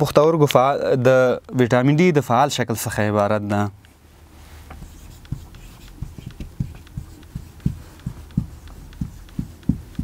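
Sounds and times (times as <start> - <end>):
marker tapping on whiteboard: 4.7 - 10.0.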